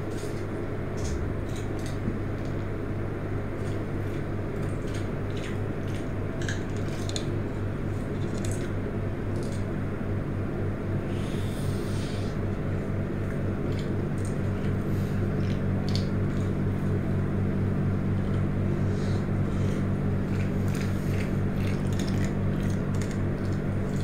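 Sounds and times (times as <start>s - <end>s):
steady low hum: 0.0s - 24.0s
chewing and squishy mouth sounds: 3.6s - 9.7s, 12.5s - 17.1s, 18.0s - 24.0s.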